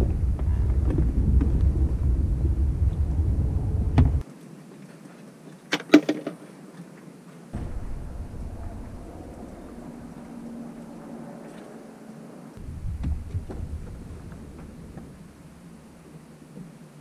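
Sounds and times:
wind on microphone: 0:00.0 - 0:04.2, 0:07.6 - 0:11.8, 0:12.5 - 0:16.3.

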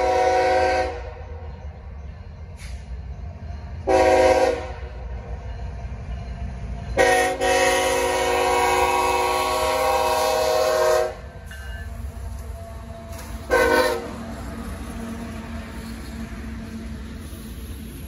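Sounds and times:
locomotive air horn blasts: 0:00.0 - 0:01.2, 0:03.8 - 0:04.9, 0:07.0 - 0:11.3, 0:13.4 - 0:14.2
train rumbling: 0:00.0 - 0:18.0.

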